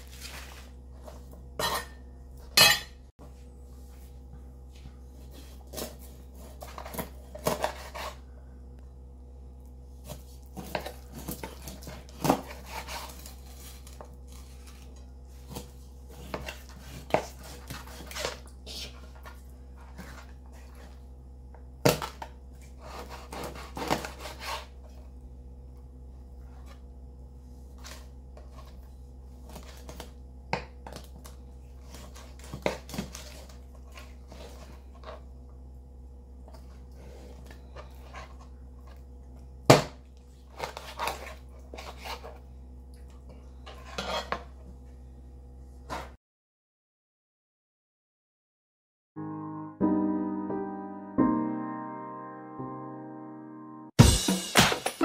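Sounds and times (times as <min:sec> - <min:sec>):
knife cutting through fish: 0:22.8 - 0:24.7.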